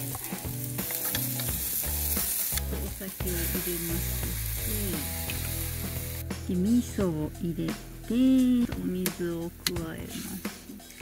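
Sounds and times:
onions sizzling in a pan: 0.0 - 6.2.

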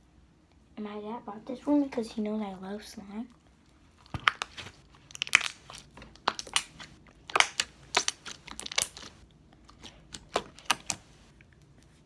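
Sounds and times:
slime squeezed wet clicks and pops: 6.2 - 9.1.

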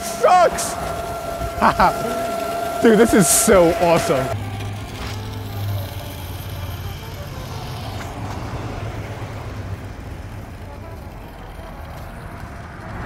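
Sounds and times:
low hum: 0.0 - 7.5
road traffic noise: 0.0 - 13.0.

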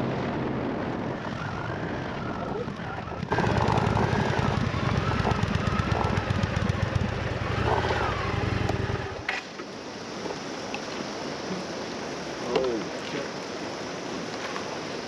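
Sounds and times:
wind buffeting microphone: 0.0 - 8.3
motorcycle engine rumble: 0.0 - 9.3.

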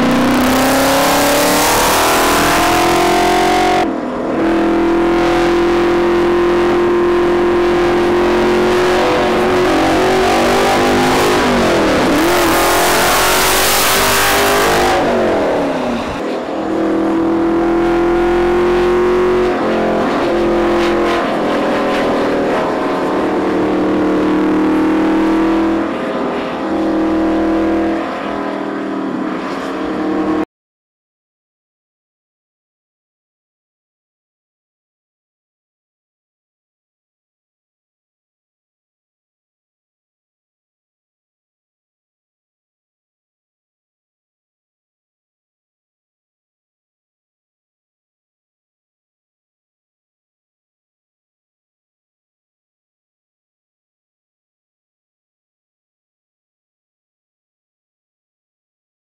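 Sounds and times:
racing car engine revving: 0.0 - 30.5.

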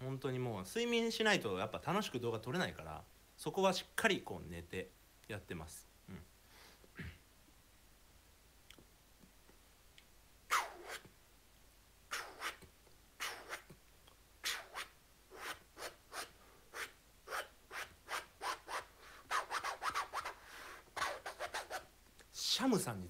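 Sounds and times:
person beatboxing: 12.1 - 13.8, 14.4 - 20.4.

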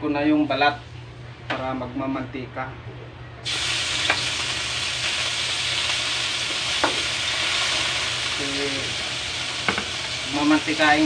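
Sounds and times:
chicken skin sizzling in a wok: 3.4 - 11.0.

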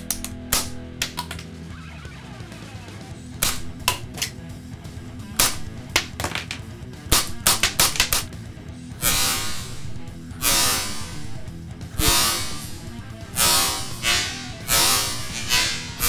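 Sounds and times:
cap gun cracks: 0.0 - 1.5, 3.4 - 4.4, 5.4 - 8.4
background music: 0.0 - 16.0.

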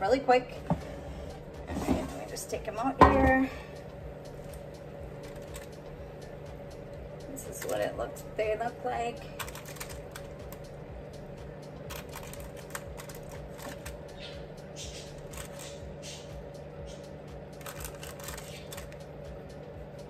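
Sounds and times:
steady low hum: 0.0 - 20.0
parchment paper rustling: 9.4 - 10.3, 11.9 - 14.0, 15.2 - 15.8, 17.6 - 19.0.

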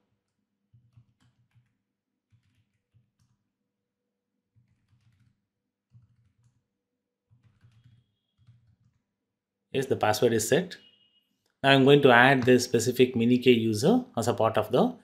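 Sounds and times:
faint keyboard typing: 0.0 - 3.5, 4.5 - 6.7, 7.3 - 9.2.

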